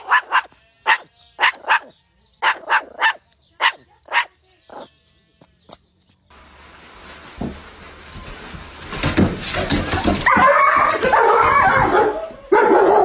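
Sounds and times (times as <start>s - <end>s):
steady hiss: 6.3s - 9.3s.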